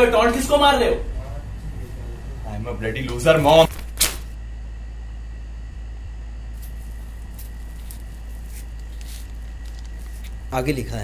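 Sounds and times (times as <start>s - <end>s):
faint high whine: 0.0s - 11.0s
low hum: 0.0s - 11.0s
paper rustling: 3.3s - 4.4s, 6.6s - 10.7s.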